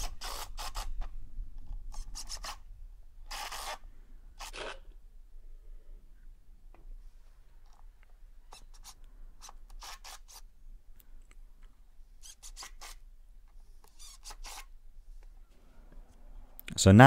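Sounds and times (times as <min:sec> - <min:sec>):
drill driving screws into wood: 0:00.0 - 0:01.0, 0:01.9 - 0:02.6, 0:03.3 - 0:03.8, 0:04.4 - 0:04.8, 0:08.5 - 0:10.4, 0:12.2 - 0:13.0, 0:13.9 - 0:14.7.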